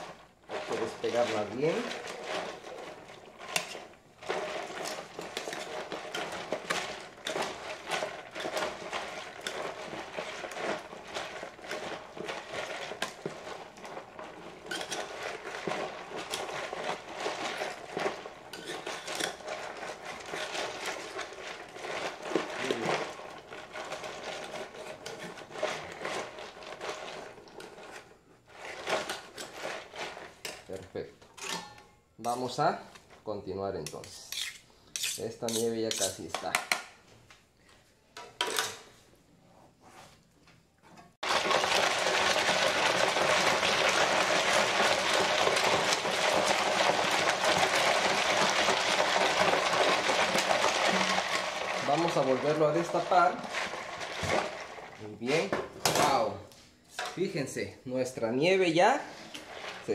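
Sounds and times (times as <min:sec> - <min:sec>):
spoon scraping ice cream container: 0:18.5 - 0:19.4, 0:33.9 - 0:36.2.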